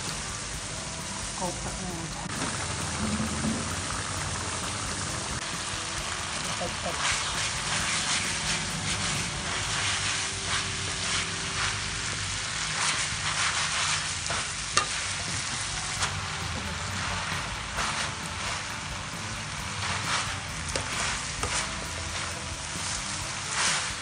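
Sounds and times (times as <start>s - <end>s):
vegetables sizzling in a wok: 0.0s - 24.0s
wooden spatula scraping pan: 6.0s - 18.7s, 19.6s - 24.0s.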